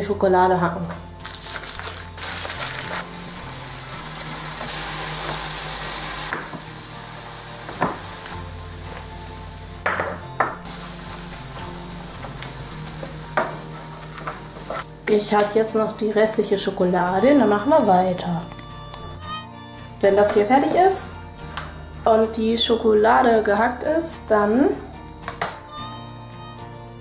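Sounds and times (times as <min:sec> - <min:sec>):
peanuts sizzling in frying pan: 0:01.2 - 0:18.3.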